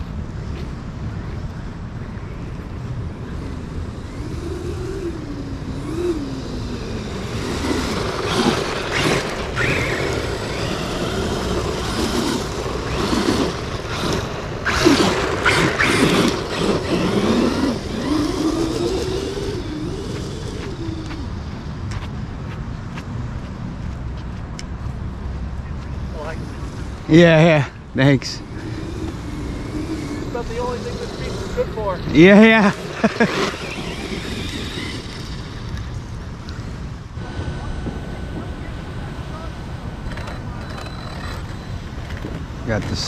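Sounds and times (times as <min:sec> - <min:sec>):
toy truck electric motor whining: 0:03.6 - 0:21.6, 0:28.2 - 0:36.0, 0:40.0 - 0:42.4
tyres spraying sand: 0:27.1 - 0:34.8.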